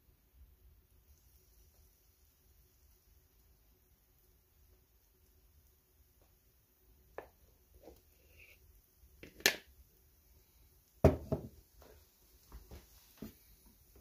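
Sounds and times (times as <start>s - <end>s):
faint steady hum: 0.0s - 14.0s
kitchen things knocking: 11.0s - 11.6s.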